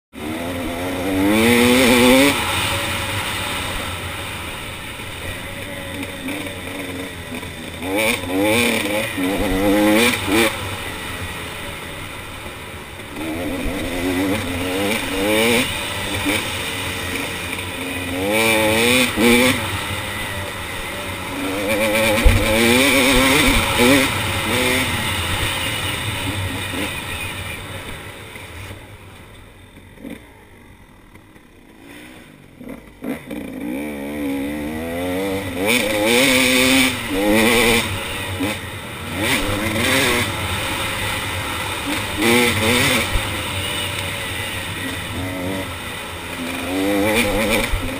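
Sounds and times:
dirt bike engine accelerating: 0:00.2 - 0:47.9
thump: 0:22.2 - 0:22.6.

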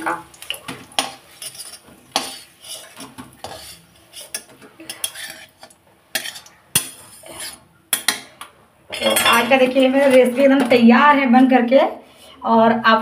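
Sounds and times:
metal spatula scraping steel pan: 0:01.0 - 0:08.3, 0:09.0 - 0:10.8.

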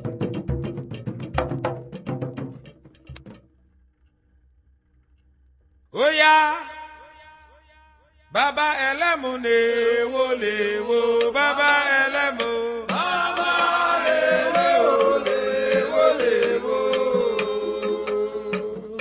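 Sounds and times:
voices chanting: 0:09.4 - 0:19.0.

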